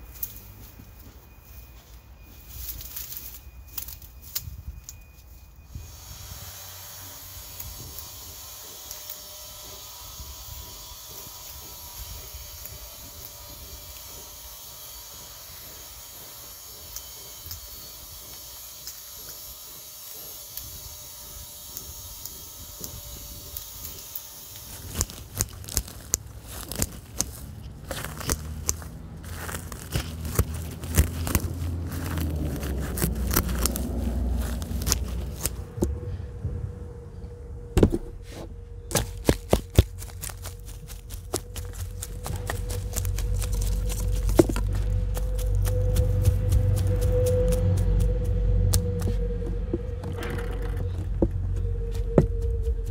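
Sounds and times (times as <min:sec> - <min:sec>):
dry grass rustling and tearing: 0:00.0 - 0:36.0, 0:37.9 - 0:52.9
metal rake scraping: 0:23.5 - 0:35.8, 0:37.9 - 0:52.2.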